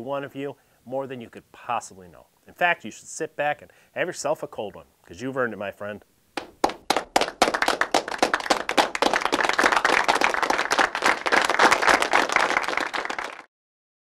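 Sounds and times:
applause: 6.4s - 13.5s.

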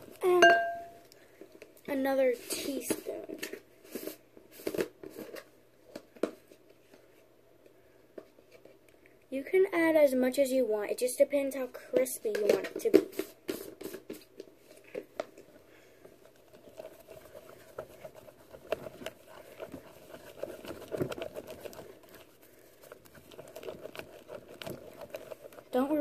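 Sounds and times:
wooden stirrer mixing slime: 11.9s - 26.0s.

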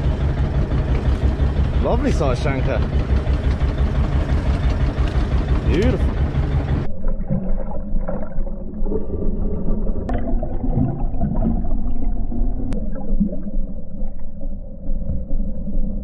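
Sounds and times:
low underwater rumble: 0.0s - 16.0s
gurgling bubbles: 6.9s - 14.4s.

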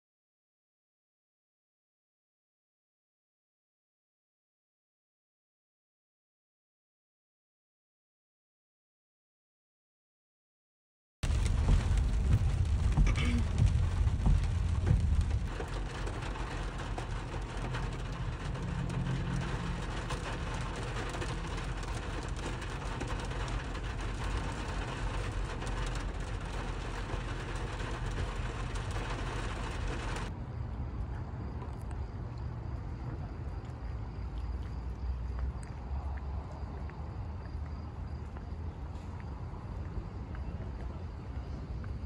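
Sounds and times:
rain on car roof: 11.2s - 30.3s
car low rumble: 11.2s - 42.0s.

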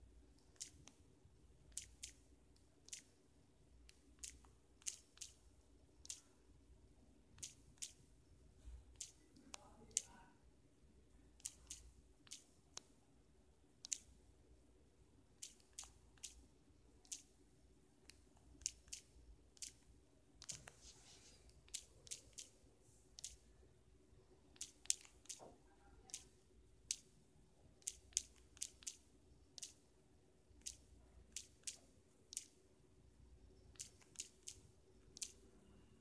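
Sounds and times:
faint steady hum: 0.0s - 36.0s
touchscreen typing clicks: 3.9s - 6.3s, 8.9s - 10.2s, 11.4s - 12.9s, 18.0s - 20.9s, 21.5s - 23.4s, 24.5s - 27.1s, 27.8s - 29.8s, 30.6s - 32.6s, 33.6s - 35.8s.

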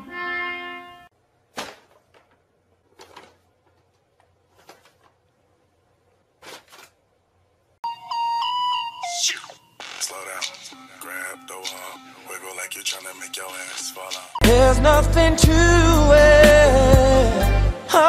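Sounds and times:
paper bag crinkling: 1.6s - 5.3s, 6.3s - 7.0s
melodic music: 7.8s - 9.7s, 10.7s - 18.0s.

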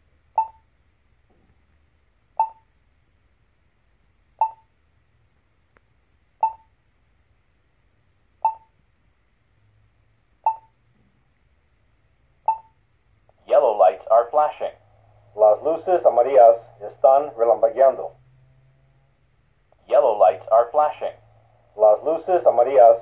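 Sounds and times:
short sharp beeps: 0.4s - 0.7s, 2.4s - 2.7s, 4.4s - 4.7s, 6.4s - 6.8s, 8.4s - 8.8s, 10.5s - 10.8s, 12.5s - 12.8s.

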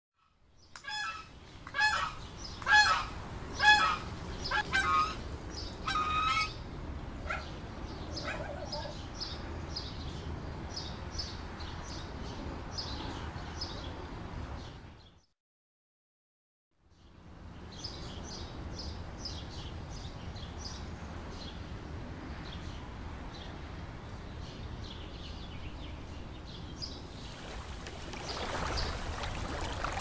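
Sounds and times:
geese honking: 0.9s - 5.2s, 5.8s - 6.6s.

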